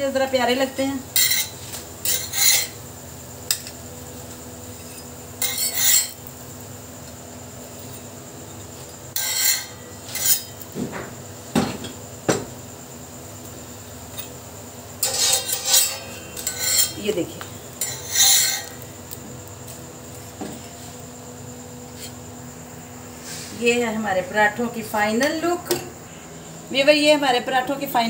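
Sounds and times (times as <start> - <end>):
metal utensils and dishes clattering: 1.2 - 2.8, 4.8 - 6.2, 15.0 - 17.0.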